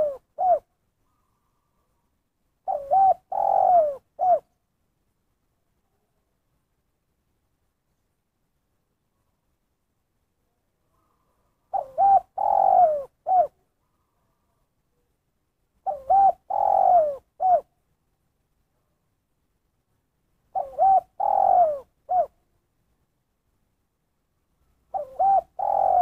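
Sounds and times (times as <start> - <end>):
dove cooing: 0.0 - 1.8, 2.6 - 4.6, 11.0 - 13.6, 15.8 - 17.7, 20.5 - 22.4, 24.9 - 26.0.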